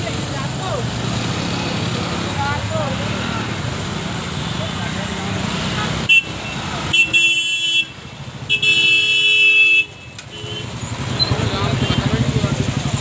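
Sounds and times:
vehicle horns honking: 4.4s - 12.3s.

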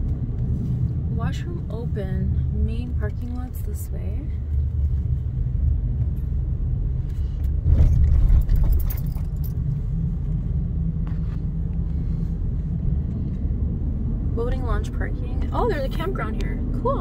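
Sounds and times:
tyres and engine rumble: 0.0s - 17.0s
rattling and jangling: 7.4s - 10.1s.

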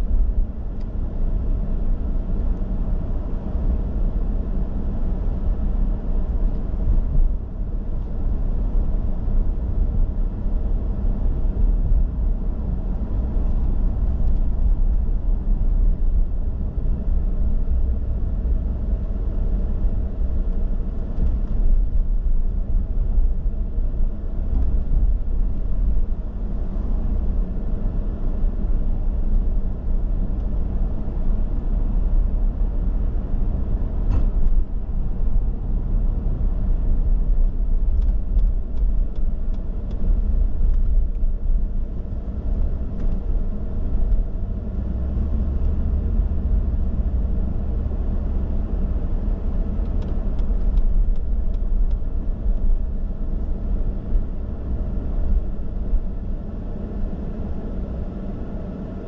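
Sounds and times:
car engine and road rumble: 0.0s - 59.0s.

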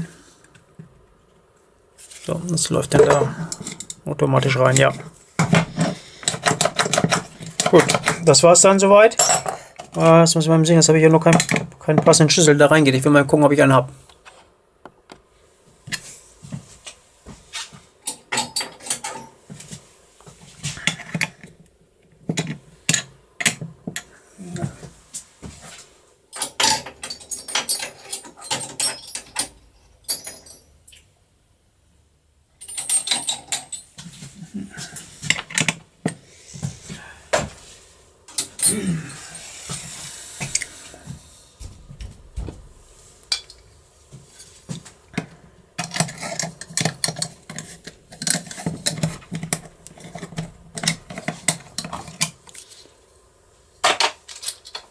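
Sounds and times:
metal keys clinking and rattling: 26.3s - 30.7s, 32.6s - 34.0s.

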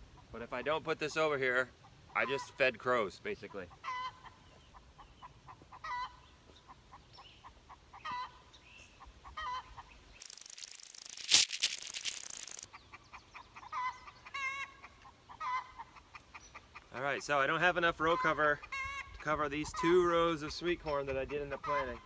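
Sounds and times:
chickens clucking: 3.4s - 10.1s, 12.4s - 17.0s, 18.0s - 22.0s
sharp crack: 10.2s - 12.7s.

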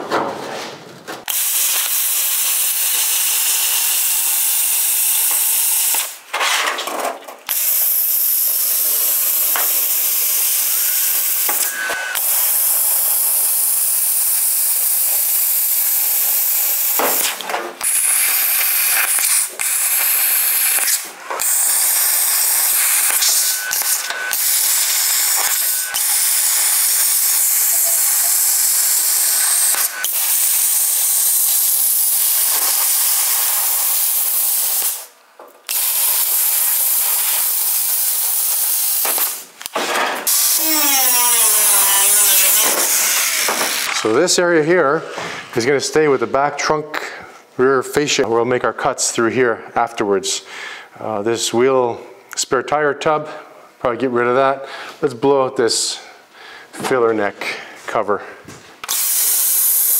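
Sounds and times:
plasma cutter hissing: 1.3s - 6.2s, 7.5s - 44.1s, 58.8s - 59.9s.

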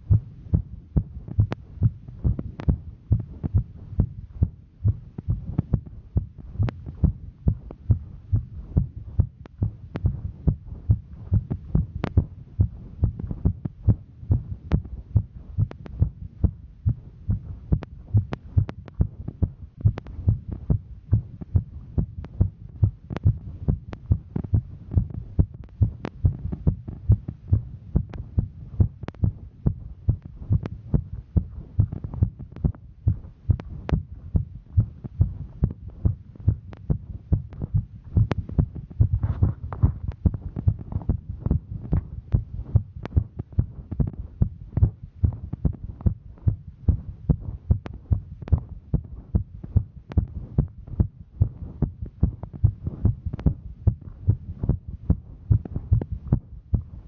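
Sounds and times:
heartbeat thuds: 0.0s - 57.0s.

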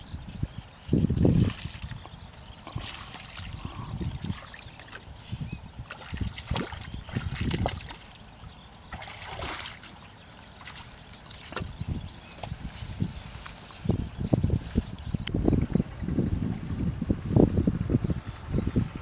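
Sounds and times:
footsteps squelching in muddy water: 5.8s - 8.3s, 8.9s - 13.8s.

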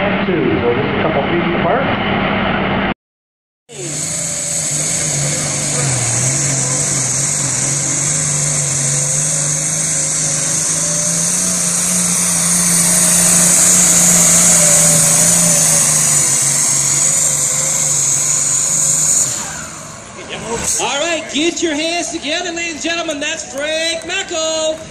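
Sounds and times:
high whine: 3.7s - 22.6s
tractor diesel engine under load: 3.7s - 24.9s.

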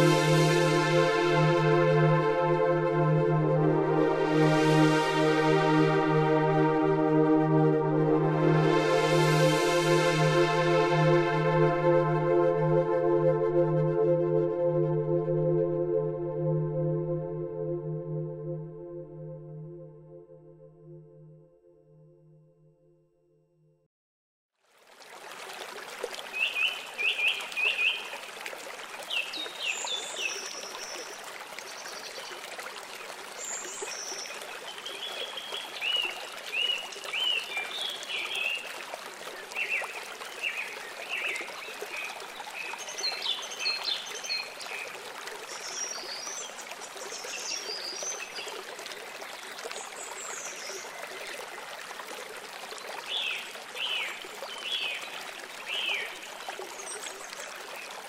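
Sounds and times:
running water: 0.0s - 12.3s, 24.6s - 58.0s.

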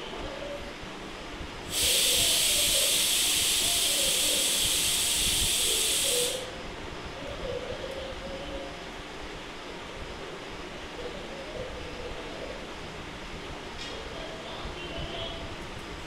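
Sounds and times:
loud steady hiss: 1.6s - 6.7s.

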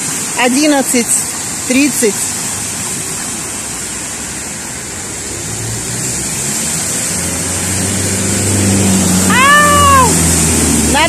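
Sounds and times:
constant rushing hiss: 0.0s - 11.0s
tyres splashing through water: 0.0s - 11.0s
low engine hum: 2.3s - 11.0s.

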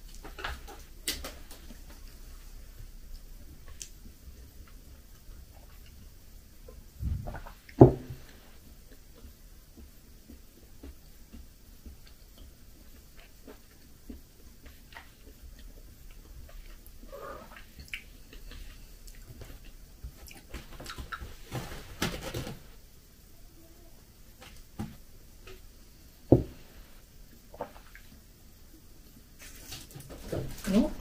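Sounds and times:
rustling: 16.3s - 22.8s, 29.4s - 31.0s.

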